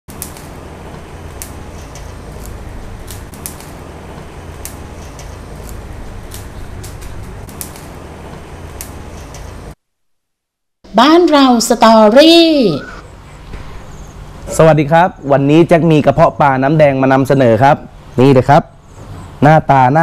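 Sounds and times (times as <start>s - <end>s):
pot boiling with clicks and pops: 0.1s - 9.7s.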